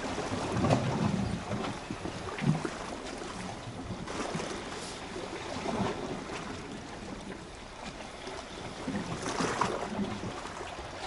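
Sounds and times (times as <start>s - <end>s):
wind on microphone: 0.0s - 7.5s.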